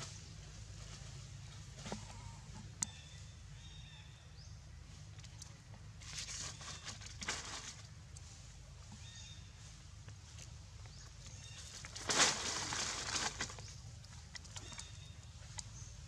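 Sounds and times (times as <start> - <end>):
rustling: 6.0 - 15.0.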